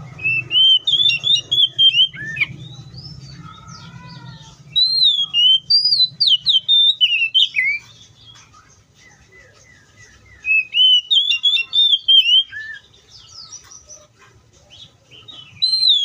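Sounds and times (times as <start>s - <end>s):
bird singing whistled notes: 0.0s - 3.8s, 4.7s - 13.8s, 15.1s - 16.0s.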